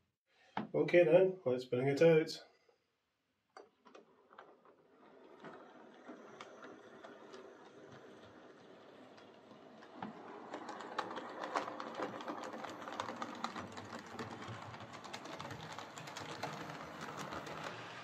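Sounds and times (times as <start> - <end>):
wheels clicking on track: 3.8 - 18.0
model train motor whirring: 4.3 - 18.0.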